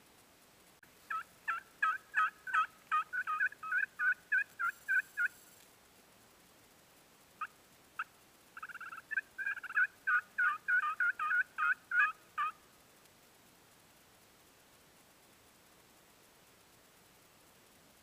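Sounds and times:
turkey call yelps: 1.1 - 5.5, 7.4 - 12.6.

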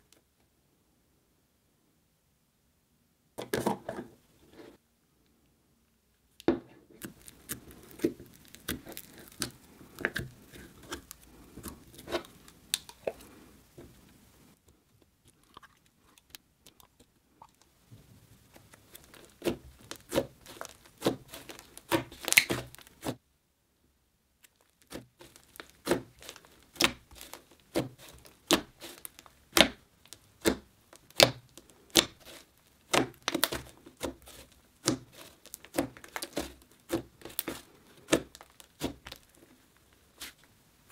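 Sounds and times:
slime crackling pops: 7.0 - 13.2, 18.5 - 23.2, 24.4 - 39.4
sticky slime tearing: 7.0 - 13.3, 18.4 - 23.2, 24.4 - 40.4.

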